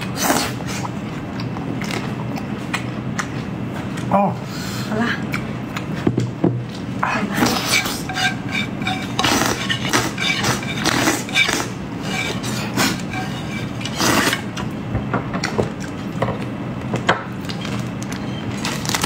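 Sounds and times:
slurping and chewing: 0.0s - 4.1s, 6.8s - 14.7s.

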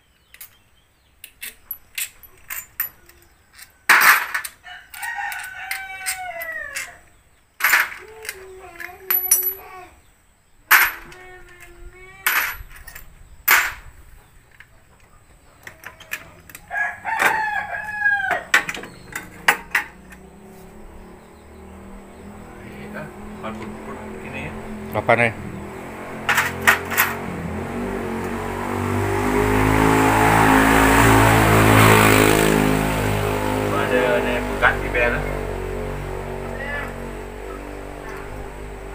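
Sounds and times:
hand tools clinking on metal: 0.3s - 7.0s, 7.6s - 9.8s, 10.7s - 11.6s, 12.2s - 13.8s, 26.3s - 27.2s
roosters crowing: 3.0s - 7.2s, 15.3s - 38.9s.

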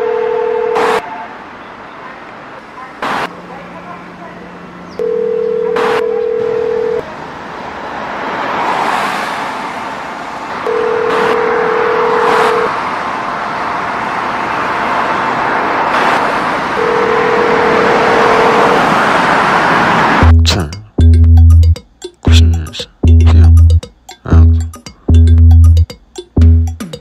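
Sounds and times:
telephone ringback tone: 0.0s - 1.0s, 5.0s - 7.0s, 10.7s - 12.7s, 16.8s - 18.7s
city traffic: 0.0s - 27.0s
heavy bass beat: 20.2s - 27.0s.

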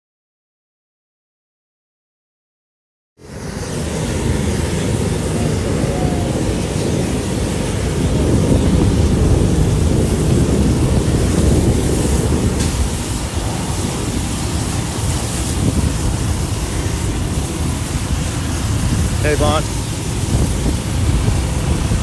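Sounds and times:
roar of burning structures: 3.2s - 22.0s
wind buffeting microphone: 3.2s - 22.0s.

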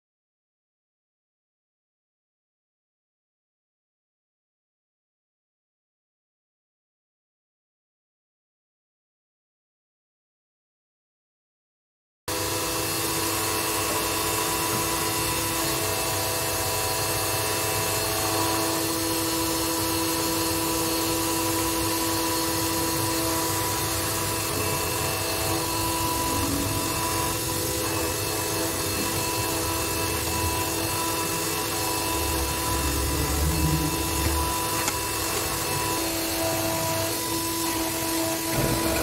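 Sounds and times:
scroll saw cutting acrylic: 12.4s - 39.0s.

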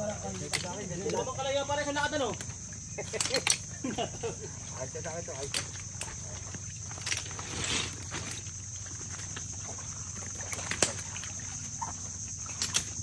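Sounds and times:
high-pitched insect buzz: 0.0s - 13.0s
rustling through branches: 4.6s - 13.0s
branches snapping and clicking: 10.3s - 11.2s.

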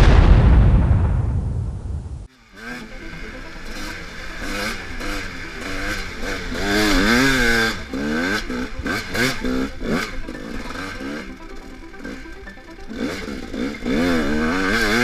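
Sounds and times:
dirt bike engine revving: 2.3s - 15.0s.

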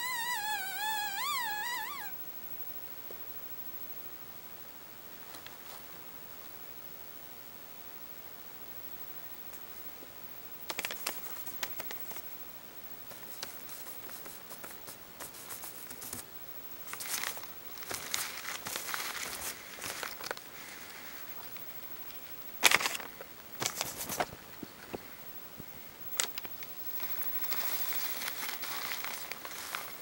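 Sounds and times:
rat rustling shredded paper: 16.9s - 21.2s, 27.0s - 30.0s.

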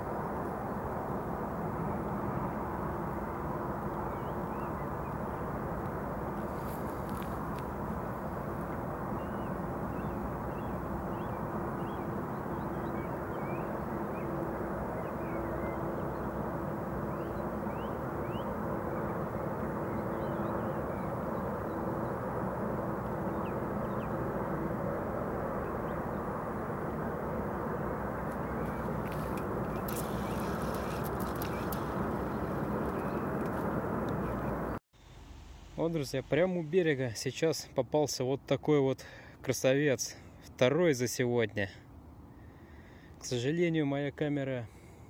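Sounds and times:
held hum: 0.0s - 35.8s
distant engine drone: 0.0s - 36.9s.

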